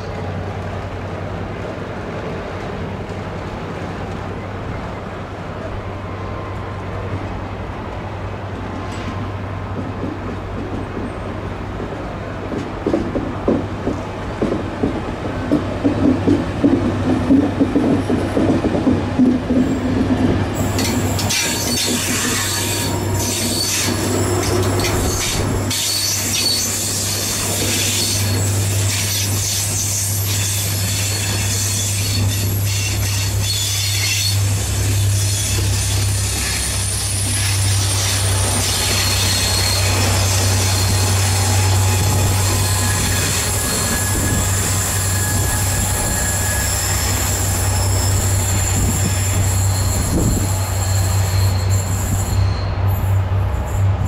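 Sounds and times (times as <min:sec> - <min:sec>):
train passing with low hum: 0:00.0 - 0:54.0
wheels clacking over rail joints: 0:06.5 - 0:53.2
wheels and brakes squealing: 0:20.6 - 0:54.0.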